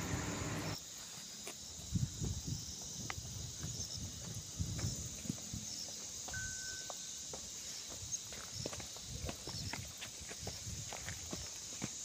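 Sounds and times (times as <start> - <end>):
broad rushing noise: 0.0 - 0.8
insects buzzing: 0.0 - 12.0
footsteps on stony trail: 0.3 - 12.0.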